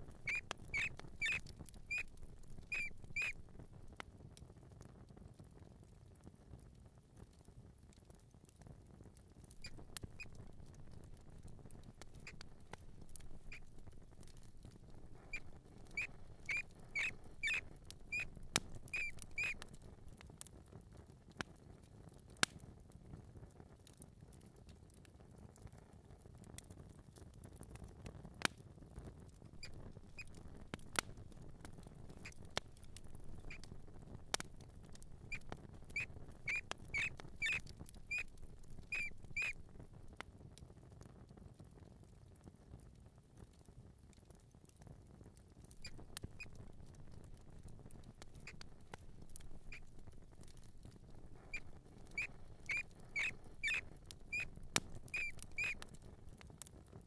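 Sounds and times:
mouse squeaking: 0.0 - 3.5, 9.5 - 11.2, 12.0 - 19.9, 29.6 - 39.7, 45.7 - 47.7, 48.3 - 56.0.

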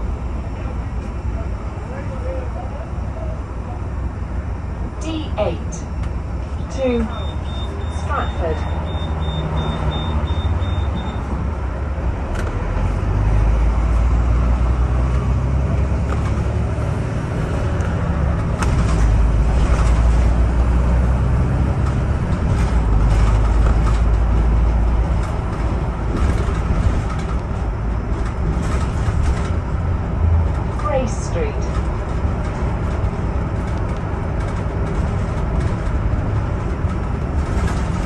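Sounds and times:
bus engine rumble: 0.0 - 38.0
high beeps: 7.1 - 11.3
body rattles: 31.6 - 38.0.

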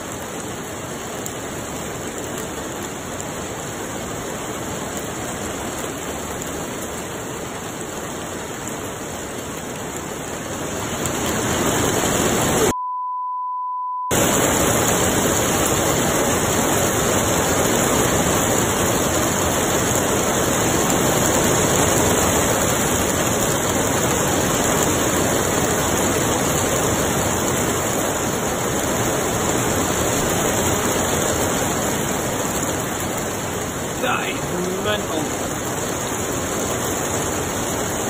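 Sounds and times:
heavy rain hissing: 0.0 - 12.7, 14.1 - 38.0
pure beep: 12.7 - 14.2.

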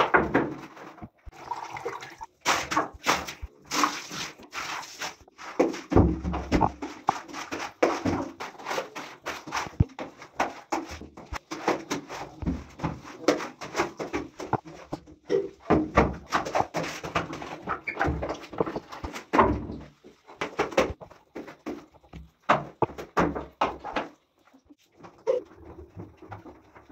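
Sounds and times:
squeegee swishing on wet tile: 2.2 - 14.8.

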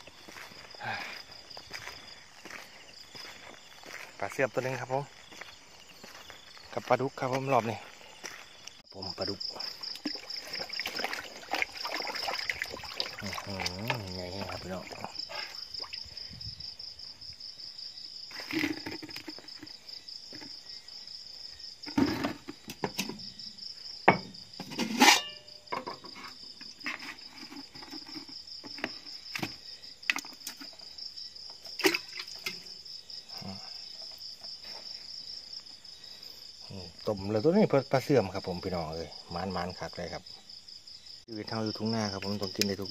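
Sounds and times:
insect chorus trilling: 0.0 - 42.9
plastic buckets knocking: 9.6 - 15.4, 18.3 - 20.6, 21.8 - 23.3, 24.0 - 24.9, 25.7 - 30.8, 31.6 - 32.7.

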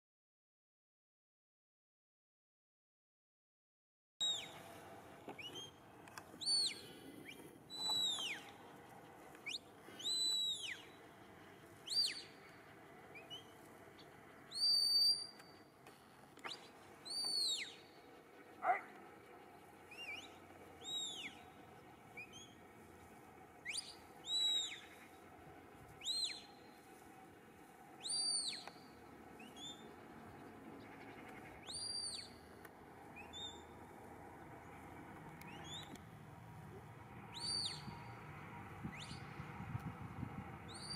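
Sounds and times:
short high whistled calls: 4.2 - 4.6, 5.4 - 5.8, 6.4 - 8.6, 9.4 - 11.0, 11.8 - 12.5, 13.1 - 13.6, 14.5 - 15.7, 16.4 - 18.0, 19.9 - 21.5, 22.2 - 22.6, 23.6 - 25.0, 26.0 - 26.8, 28.0 - 29.9, 31.2 - 32.4, 33.2 - 33.7, 35.4 - 36.0, 37.3 - 38.1, 38.8 - 39.4, 40.7 - 40.9.

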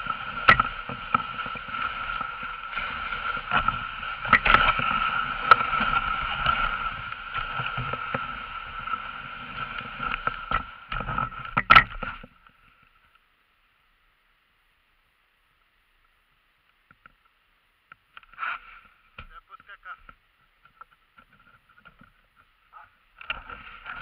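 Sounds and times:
sled runners on snow: 0.0 - 12.3, 21.6 - 24.0
sled knocking and rattling: 0.0 - 12.4, 23.2 - 24.0.

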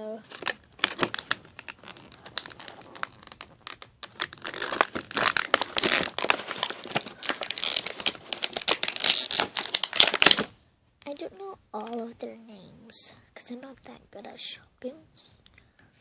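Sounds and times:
plastic packaging crinkling: 0.0 - 10.5.

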